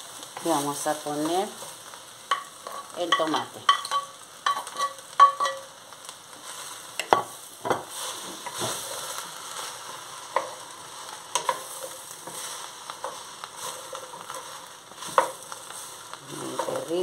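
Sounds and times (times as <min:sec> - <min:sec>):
vegetables sizzling in a pot: 0:00.0 - 0:17.0
wooden spoon stirring: 0:06.5 - 0:17.0.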